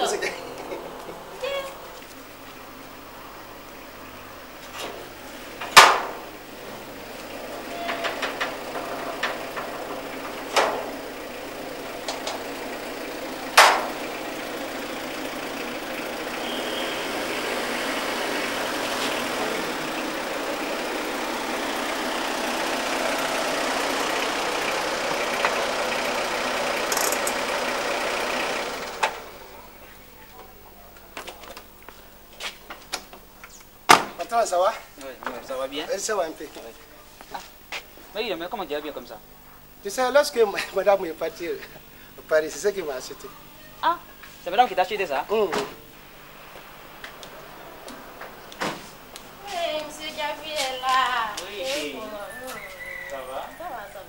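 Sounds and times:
car engine running: 0.0 - 33.9, 40.5 - 51.6
sheet-metal gate clanking: 4.7 - 16.5.

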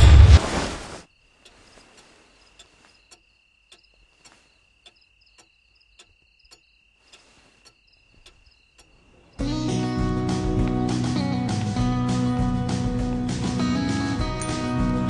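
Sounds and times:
cricket trilling: 1.0 - 9.4
soft ticks: 1.4 - 9.0.

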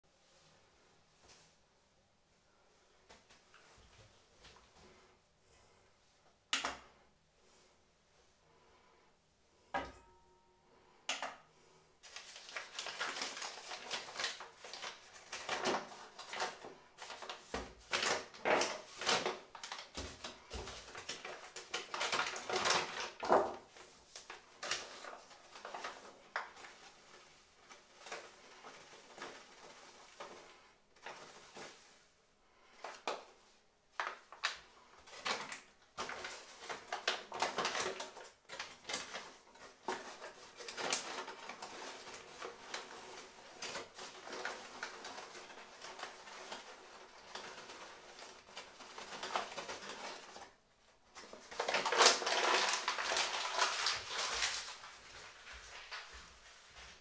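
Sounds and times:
paper bags rustling: 12.0 - 57.0.

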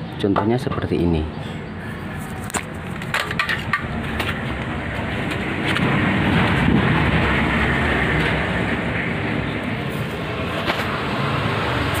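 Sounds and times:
rough grinding rumble: 3.3 - 12.0.

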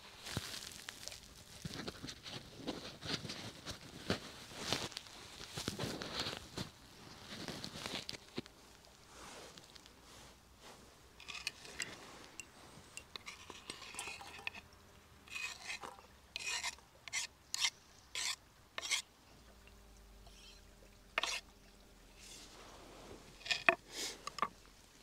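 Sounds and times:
kitchen utensils scraping and clicking: 11.2 - 14.6, 15.3 - 19.0, 20.3 - 21.4, 23.4 - 24.5.

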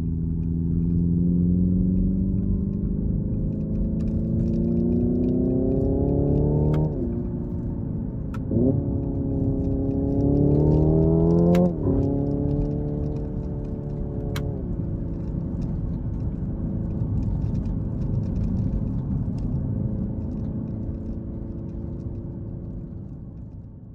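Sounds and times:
low road noise: 0.0 - 23.9
gear shift click: 1.8 - 19.6.

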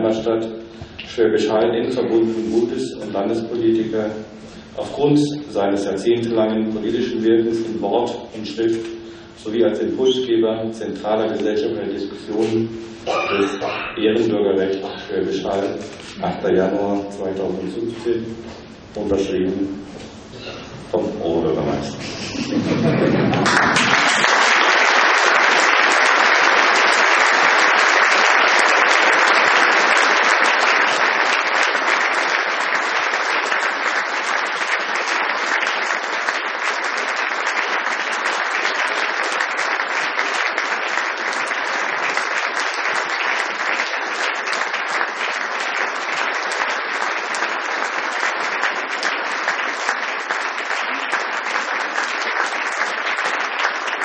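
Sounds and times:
audience applauding: 22.5 - 54.0.

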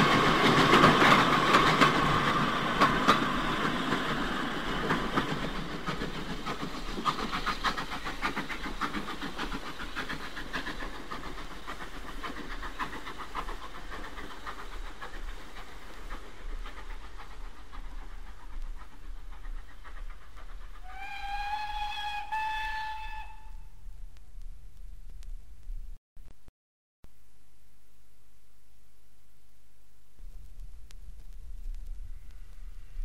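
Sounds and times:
steam locomotive exhaust beats: 0.0 - 25.3, 30.2 - 33.0
steam whistle: 20.8 - 23.8.

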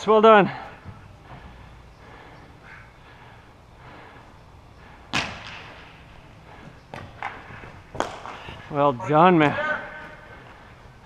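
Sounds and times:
low background noise: 0.0 - 11.0
sharp echoing crack: 4.8 - 8.8.

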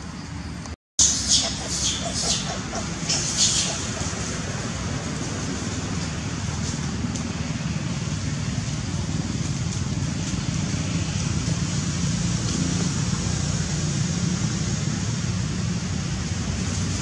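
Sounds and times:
even hiss: 1.0 - 4.9.

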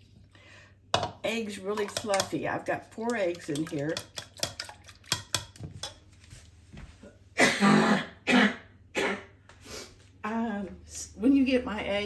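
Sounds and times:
whisk clicking against ceramic bowl: 1.7 - 6.0
woman coughing hard: 7.4 - 9.3.

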